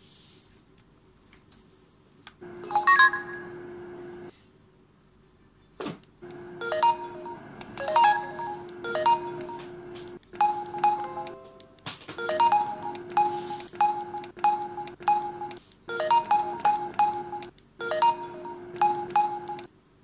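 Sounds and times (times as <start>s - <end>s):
phone ringtone notes: 2.6s - 3.6s, 6.6s - 11.6s, 12.2s - 19.7s.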